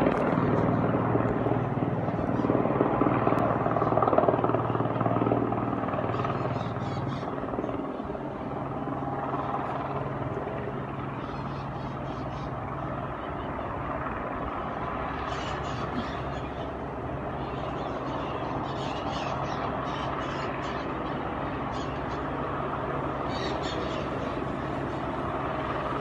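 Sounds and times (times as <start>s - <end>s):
helicopter drone: 0.0s - 26.0s.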